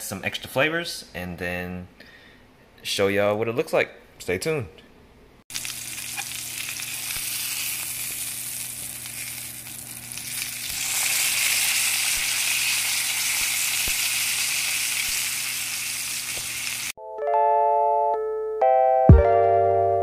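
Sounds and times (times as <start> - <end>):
steak sizzling in a skillet: 5.5 - 17.0.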